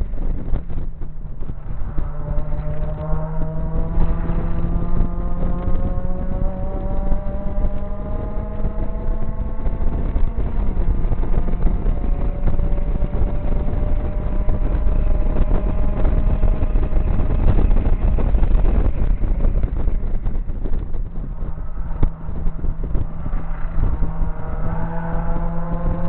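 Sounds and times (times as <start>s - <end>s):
wind noise: 0.0s - 26.0s
car engine revving hard: 2.0s - 17.9s, 21.5s - 26.0s.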